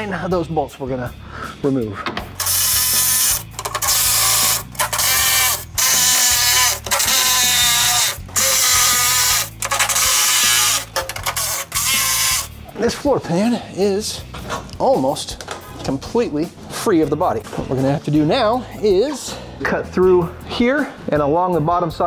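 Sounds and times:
cordless impact driver: 2.4s - 12.5s.

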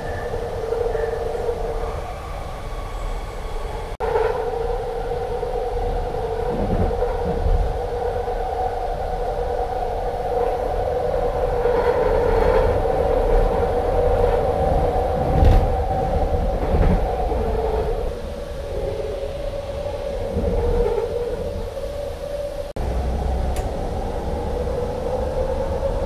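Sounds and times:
vehicle low rumble: 11.8s - 26.0s.

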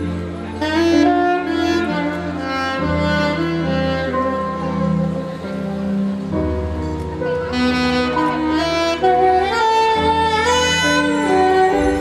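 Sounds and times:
alto saxophone slow melody: 0.0s - 12.0s.

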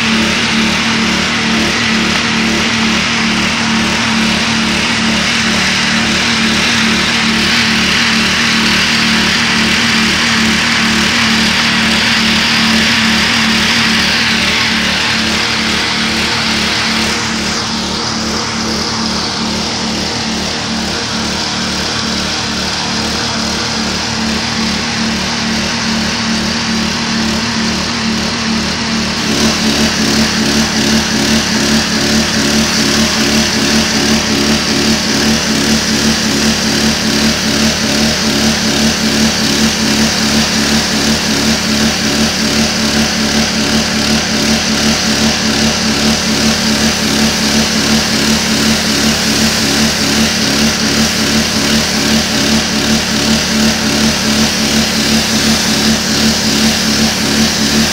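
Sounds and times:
high-pressure water spray hissing: 0.0s - 57.9s
pressure washer engine running: 0.0s - 57.9s.

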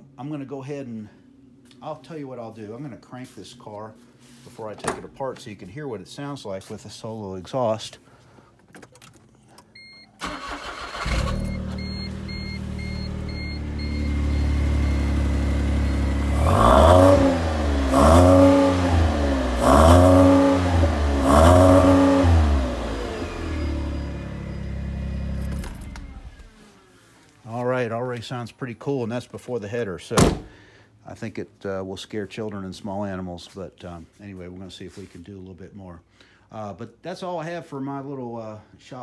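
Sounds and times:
car engine starting and revving: 10.2s - 26.7s.

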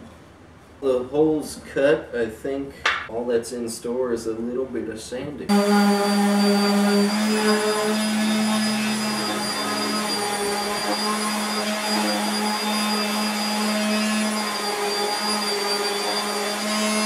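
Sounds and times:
orbital sander running: 5.5s - 17.0s.

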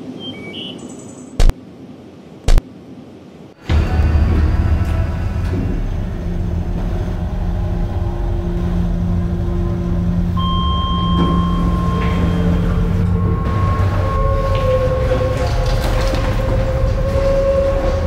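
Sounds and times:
low steady rumble: 3.6s - 18.0s
held unchanging tones: 4.7s - 18.0s.

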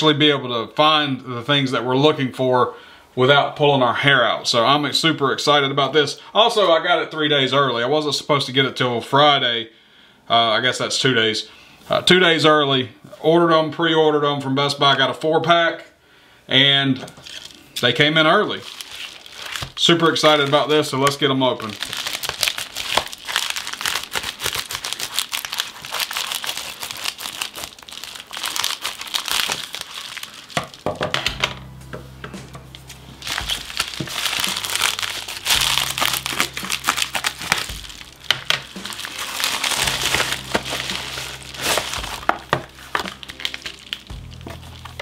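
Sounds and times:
plastic mailer crinkling and tearing: 17.2s - 31.1s, 32.8s - 45.0s.

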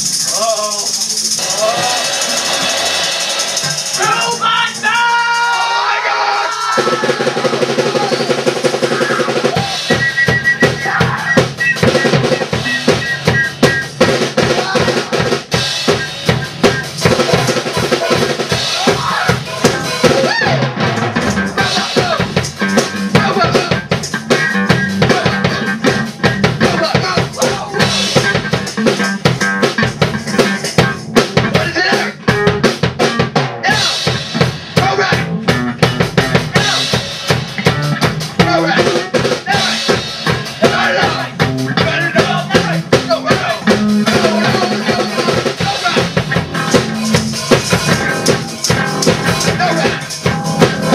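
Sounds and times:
rock drum kit played fast: 0.0s - 50.9s
electric guitar: 8.7s - 50.9s.

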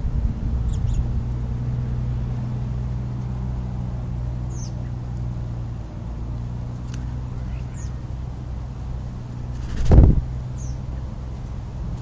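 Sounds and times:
low hum: 0.0s - 12.0s
bird chirp: 0.6s - 1.1s, 4.4s - 5.1s, 7.0s - 8.1s, 9.4s - 11.6s.

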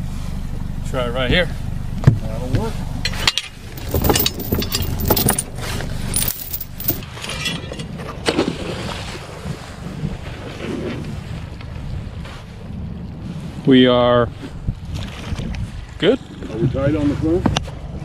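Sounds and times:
anchor chain clinking and rattling: 3.7s - 7.0s
wind on microphone: 9.9s - 16.0s.

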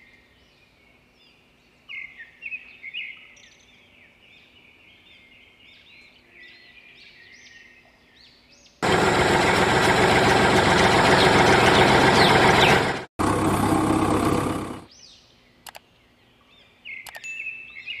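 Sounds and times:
birds chirping: 1.9s - 18.0s
engine-like rushing noise: 8.8s - 14.9s
sharp clicks: 15.6s - 15.8s, 17.0s - 17.2s.

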